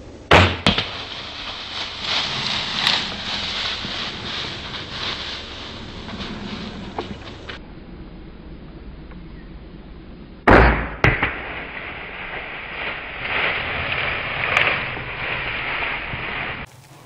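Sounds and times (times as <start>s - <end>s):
crossbow firing crack: 0.3s - 3.2s, 10.5s - 15.4s
deer crashing through dry brush: 0.3s - 7.6s, 10.8s - 17.0s.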